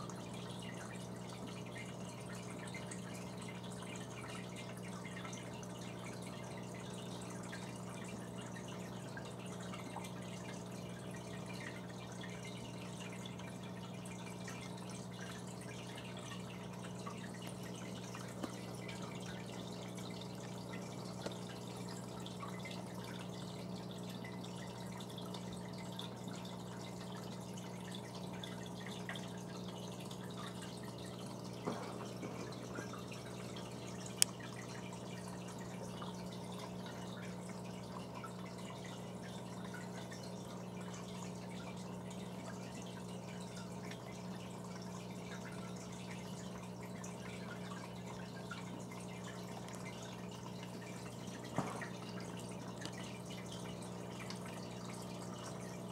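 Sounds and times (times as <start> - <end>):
aquarium pump humming: 0.0 - 55.9
water dripping and trickling: 0.0 - 55.9.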